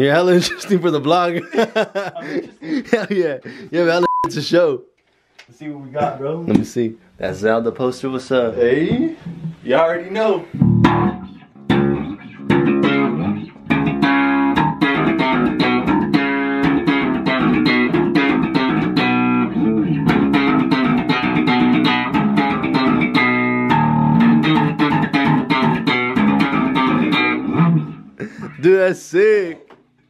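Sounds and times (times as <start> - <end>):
electric bass guitar plucked notes: 10.6 - 28.6.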